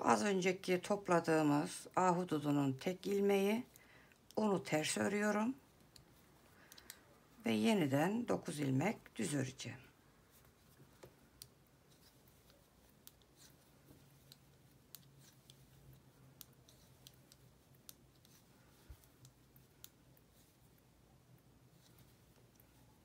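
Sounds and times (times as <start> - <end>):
knitting needles clicking: 3.0 - 7.4, 10.4 - 23.0.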